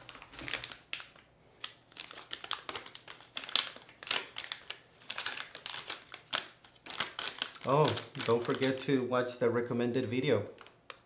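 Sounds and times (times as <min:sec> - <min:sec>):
plastic bag crinkling: 0:00.0 - 0:08.9, 0:10.5 - 0:11.0.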